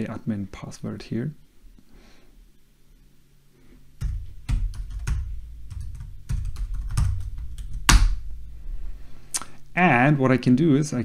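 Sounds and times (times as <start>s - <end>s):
typing on computer keyboard: 4.0s - 8.1s.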